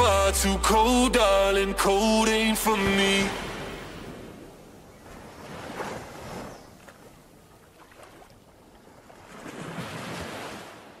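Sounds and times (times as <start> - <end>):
sea waves washing: 2.6 - 11.0.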